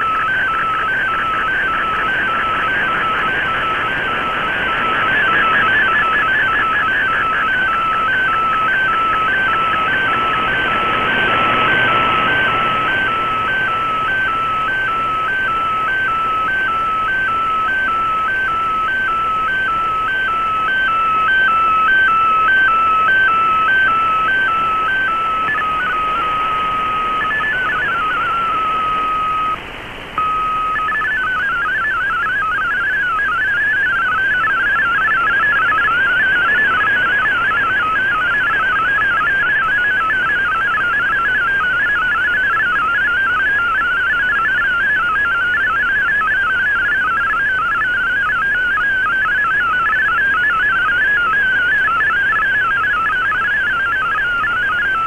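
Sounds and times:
radio band hiss: 0.0 - 17.6, 19.3 - 32.2, 32.8 - 41.9
alternating two-tone data signal: 0.0 - 29.6, 30.2 - 55.0.

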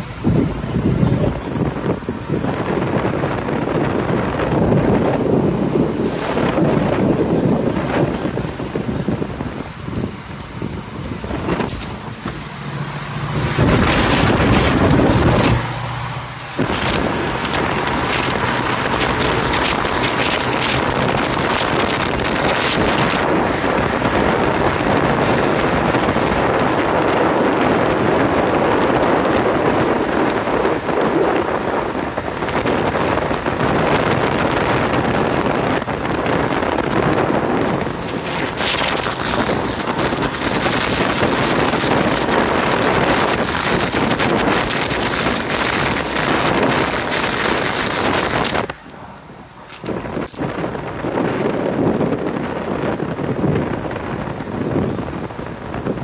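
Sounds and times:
car engine hum: 0.0 - 56.0
road noise: 0.0 - 56.0
wind rushing over microphone: 0.0 - 56.0.

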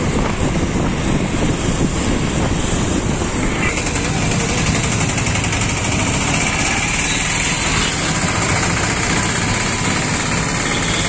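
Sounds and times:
surrounding vehicle engines: 0.0 - 11.0
motorcycle engine idling: 3.7 - 7.1.

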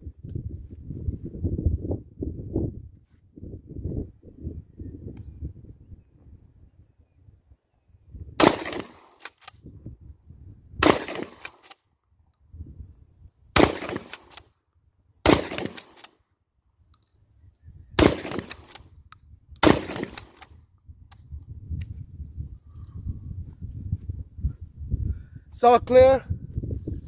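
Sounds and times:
shotgun shots: 8.4 - 9.4, 10.8 - 11.7, 13.6 - 14.4, 15.2 - 16.1, 18.0 - 18.8, 19.6 - 20.5.

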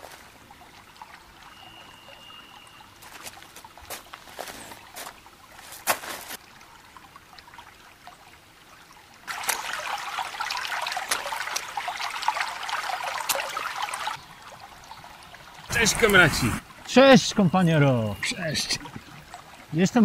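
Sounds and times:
stream rushing over rocks: 9.2 - 20.0.

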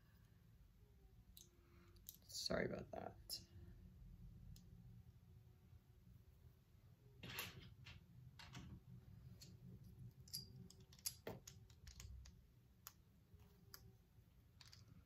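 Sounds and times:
plastic bricks clicking together: 10.2 - 13.0, 14.5 - 15.0.

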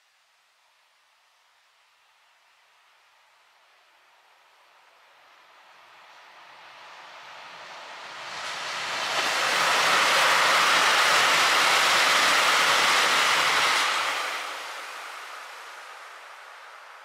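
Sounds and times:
diesel train passing: 5.2 - 17.0.

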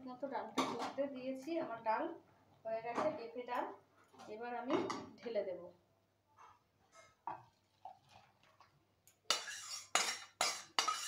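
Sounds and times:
metal utensil scraping pot: 9.3 - 11.0.

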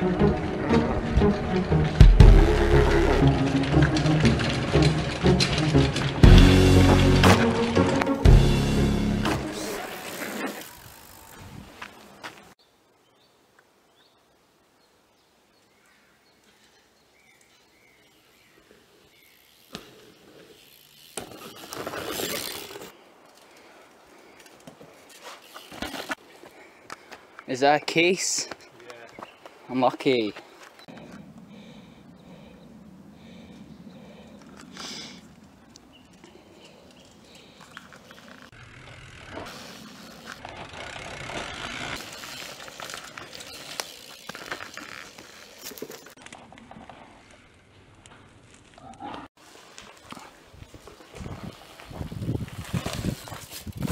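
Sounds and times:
tyres rushing over dirt: 0.0 - 8.4
tyres rolling over dirt: 0.0 - 8.5, 9.2 - 12.5, 19.7 - 23.6, 37.4 - 47.5, 49.3 - 53.9
bike rattling: 0.0 - 12.6, 18.6 - 28.4, 36.0 - 53.9
bike clicks and knocks: 20.6 - 22.9, 24.4 - 26.2.

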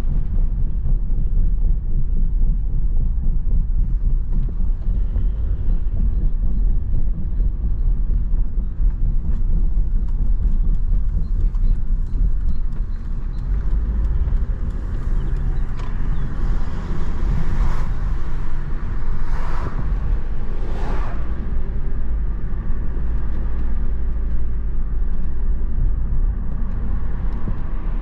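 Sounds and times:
car engine rumble: 0.0 - 28.0
faint regular ticking: 3.1 - 18.8.

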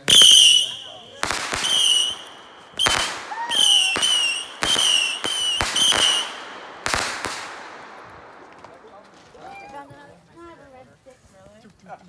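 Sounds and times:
firework whistle: 0.0 - 7.4
firework bangs: 0.0 - 9.8.

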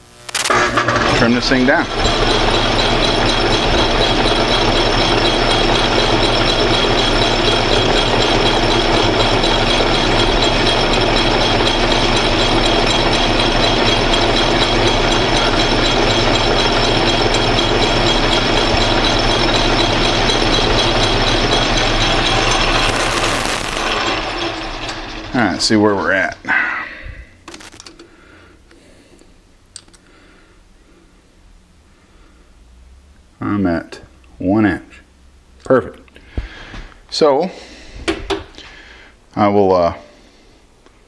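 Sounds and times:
metal lathe whining: 0.3 - 27.8.

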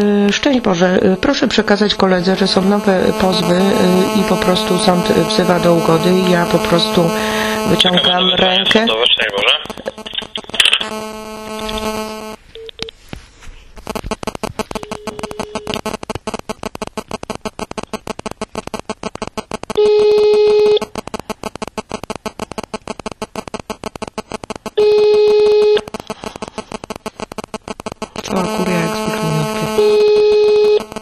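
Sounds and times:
line interference crackle: 0.0 - 31.0
telephone ringing tone: 0.6 - 8.9, 10.8 - 12.9, 13.9 - 17.7, 19.7 - 20.9, 24.8 - 26.0, 28.2 - 31.0.

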